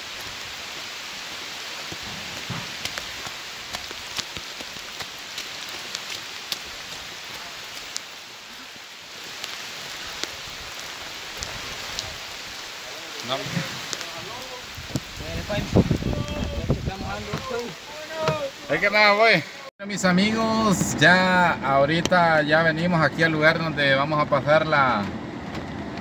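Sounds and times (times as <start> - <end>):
steady rain hiss: 0.0 - 25.0
raindrops ticking close by: 0.1 - 19.7.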